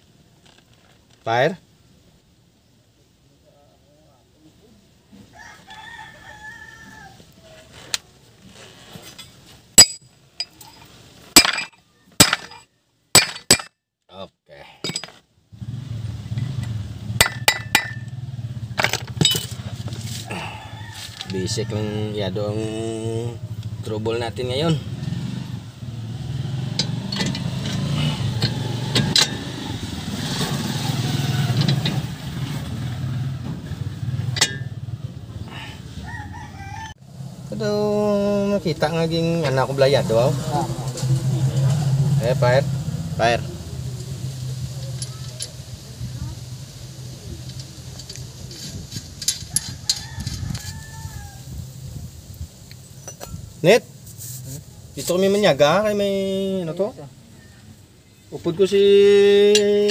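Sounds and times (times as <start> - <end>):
rooster crowing: 5.2 - 7.7, 20.2 - 22.8, 35.4 - 37.1, 49.4 - 51.6
hammer clanking on metal: 9.8 - 10.6, 11.4 - 12.6, 13.2 - 13.7, 17.2 - 18.1, 34.4 - 34.8
engine running: 15.5 - 21.3, 24.6 - 35.8, 39.6 - 49.5.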